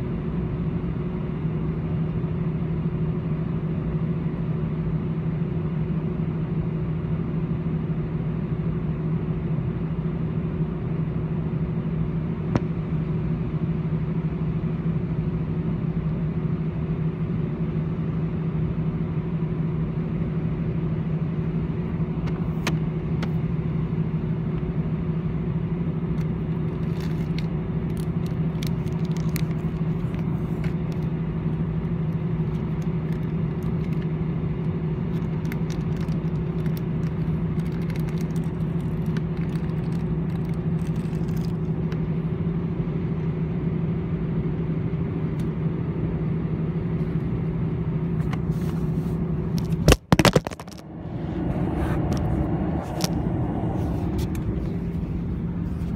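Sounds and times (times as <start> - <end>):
aircraft cabin drone: 0.0 - 55.9
steady tone: 49.9 - 55.8.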